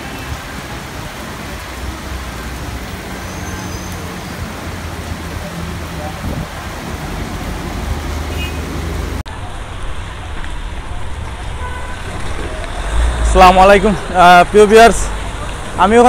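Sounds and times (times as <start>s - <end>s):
heavy rain pouring: 0.0s - 16.0s
traffic humming on wet street: 0.0s - 16.0s.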